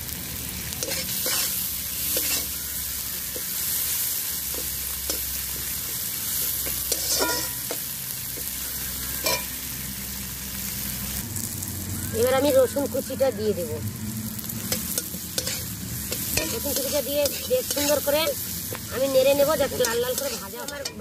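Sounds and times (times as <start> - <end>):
onions sizzling in hot oil: 0.0 - 21.0
metal spatula scraping pan: 0.8 - 2.6, 6.9 - 7.8, 9.2 - 9.5, 14.7 - 18.3, 19.4 - 21.0.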